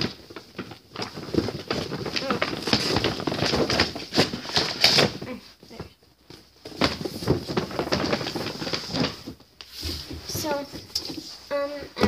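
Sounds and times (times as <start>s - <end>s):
cardboard boxes rustling and scraping: 5.8s - 11.7s.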